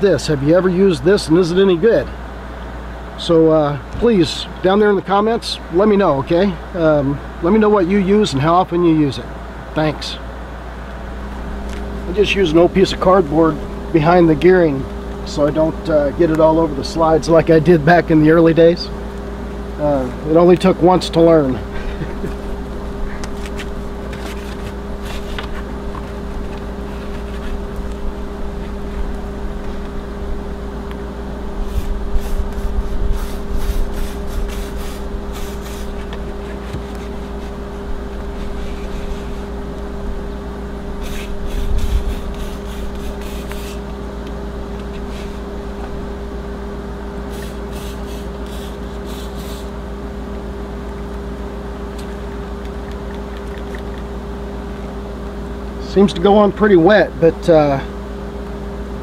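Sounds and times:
steady hum: 0.0 - 59.0
aerosol spray hissing bursts: 31.7 - 36.0, 41.0 - 43.8, 47.3 - 49.7.

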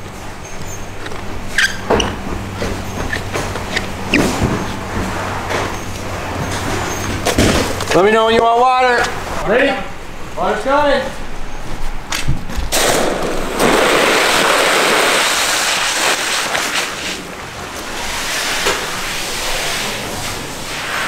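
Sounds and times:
water rushing into hose: 12.8 - 21.0.

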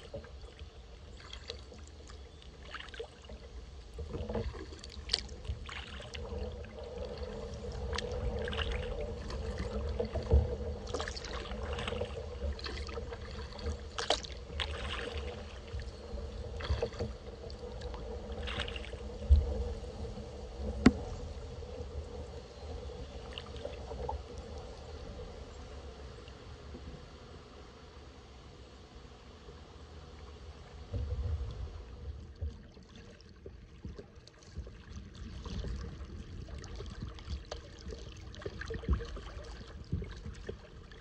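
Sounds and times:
paddle splashing into water: 0.0 - 19.8, 20.5 - 21.4
low steady rumble: 0.0 - 41.0
water dripping and trickling: 4.0 - 19.3.

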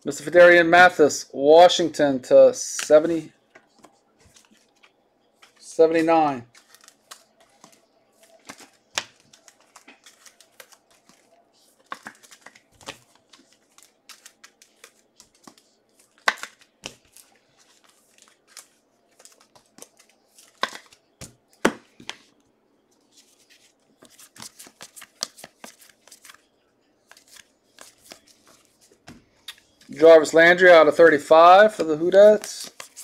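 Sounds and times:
cards sliding: 3.8 - 21.0, 23.2 - 26.4, 27.1 - 29.9, 32.2 - 33.0.

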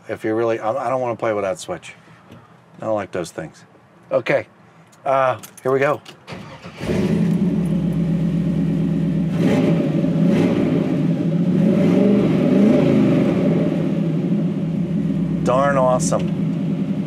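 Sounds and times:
truck engine starting and idling: 6.0 - 17.0.

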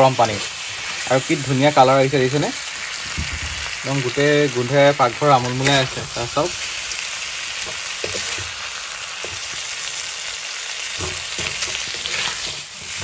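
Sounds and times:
food sizzling in a pan: 0.0 - 13.0
metal spatula scraping pan: 10.9 - 13.0.

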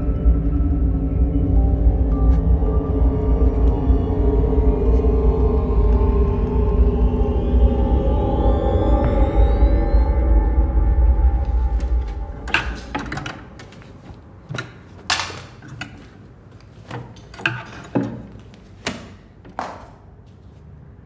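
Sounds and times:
low dark film music: 0.0 - 15.3.

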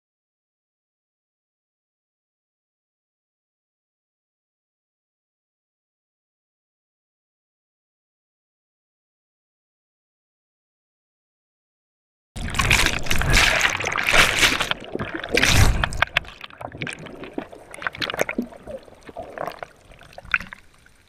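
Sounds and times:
bubbles fizzing underwater: 12.4 - 21.0
rush of water: 12.4 - 21.0.

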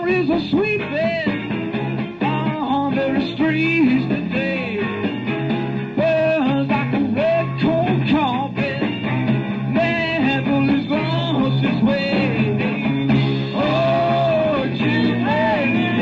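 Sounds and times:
guitar: 0.0 - 16.0
rock and roll band music: 0.0 - 16.0
steady bass line: 0.0 - 16.0
person singing: 2.2 - 5.0, 6.0 - 8.9, 9.8 - 16.0.

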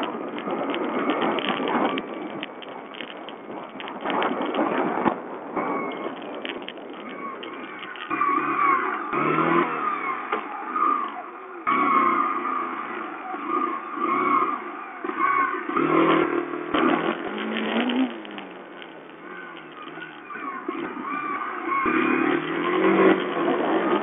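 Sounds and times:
motorcycle engine revving: 6.0 - 24.0.

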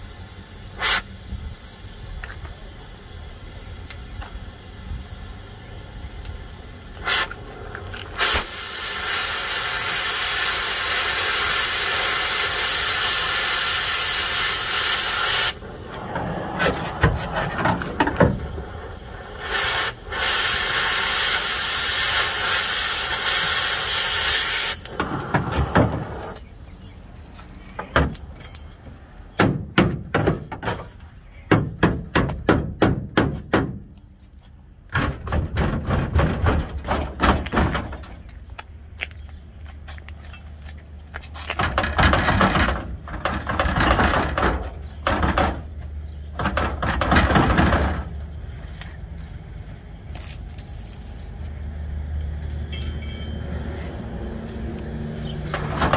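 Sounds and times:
cutting torch hissing: 0.0 - 17.1, 18.1 - 26.4.

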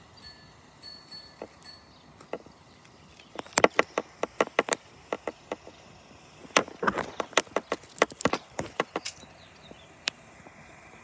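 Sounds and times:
sharp clicks and taps: 2.2 - 5.8, 6.4 - 9.2.

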